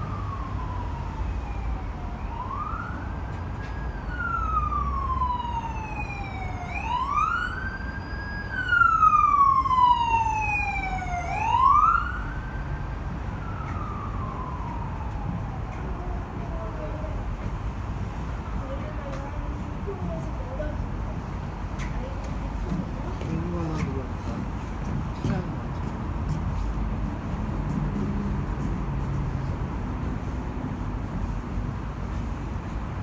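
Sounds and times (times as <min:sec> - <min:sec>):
siren wailing: 0:00.0 - 0:16.5
heavy traffic rumble: 0:00.0 - 0:33.0.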